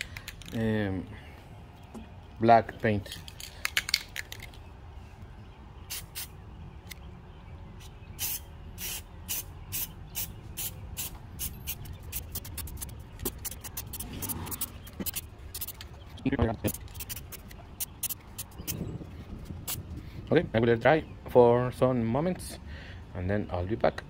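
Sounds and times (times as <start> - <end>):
spray can hissing: 8.2 - 15.8, 16.6 - 18.8.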